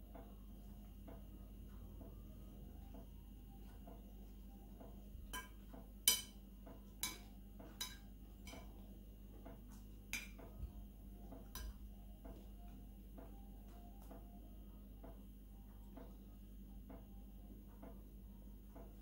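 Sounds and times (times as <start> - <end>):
cutlery clinking on plate: 7.0 - 8.7.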